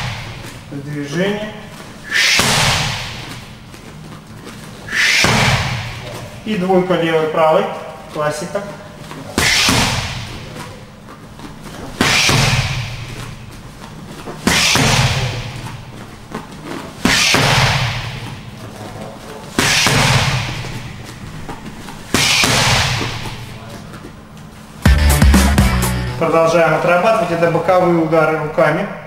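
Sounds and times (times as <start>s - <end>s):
boxing gloves smacking pads: 2.3s - 3.6s, 5.2s - 6.1s, 9.4s - 10.7s, 11.8s - 13.4s, 14.3s - 15.8s, 17.0s - 18.5s, 19.5s - 23.5s.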